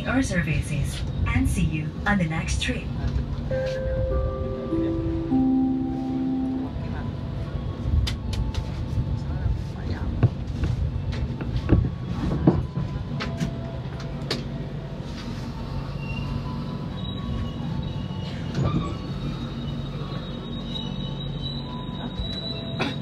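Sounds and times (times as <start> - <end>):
train running rumble: 0.0 - 23.0
brake and wheel squeal: 15.7 - 23.0.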